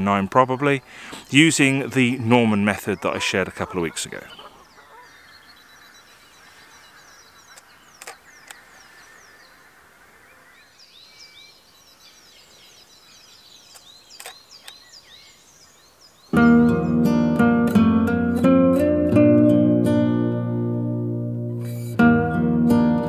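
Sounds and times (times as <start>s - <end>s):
small birds chirping: 0.0s - 17.6s
sharp clicks: 7.5s - 8.6s, 13.7s - 14.8s
acoustic guitar music: 16.3s - 23.0s.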